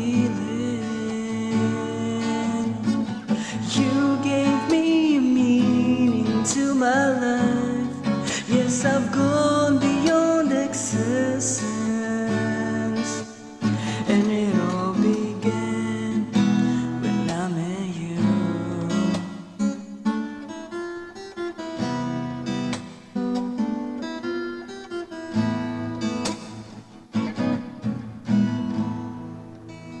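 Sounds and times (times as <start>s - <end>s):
acoustic guitar chords: 0.0s - 30.0s.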